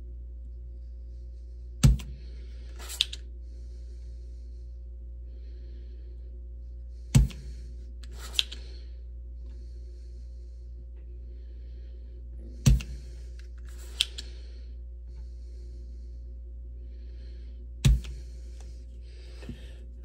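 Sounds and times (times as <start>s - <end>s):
desoldering plunger snap: 1.8s - 3.2s, 7.1s - 8.7s, 12.6s - 14.4s
lighter click: 2.8s - 3.2s, 13.8s - 14.3s.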